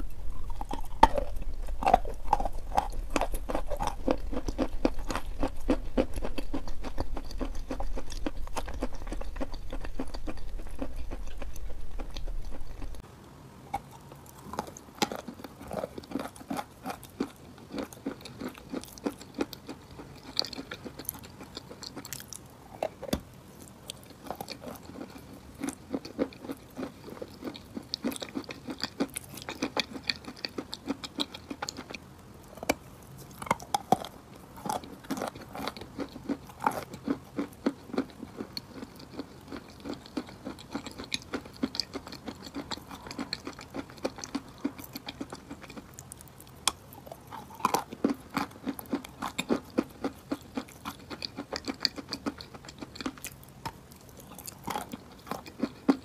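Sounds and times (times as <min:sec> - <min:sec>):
person chewing gritty crunches: 0:00.0 - 0:13.1, 0:13.7 - 0:56.0.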